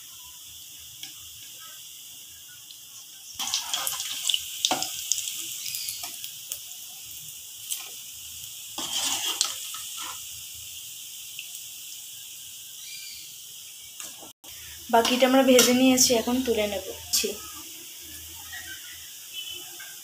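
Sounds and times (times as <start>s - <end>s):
hot oil sizzling: 0.0s - 20.0s
metal spoon scraping and clinking: 8.8s - 10.2s.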